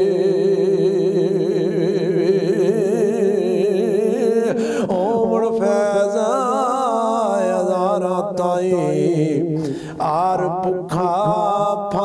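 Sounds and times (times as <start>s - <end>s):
man singing with vibrato: 0.0s - 12.0s.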